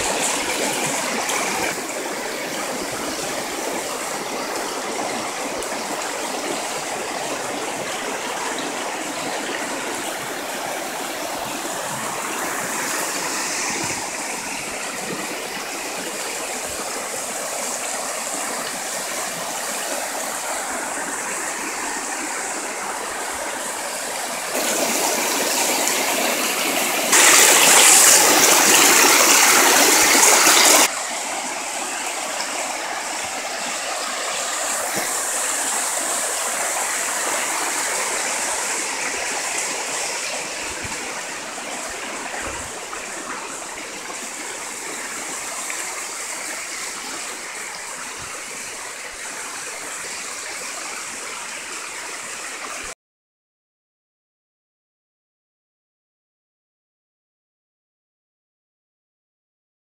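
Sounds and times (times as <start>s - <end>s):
waterfall rushing: 0.0s - 52.9s.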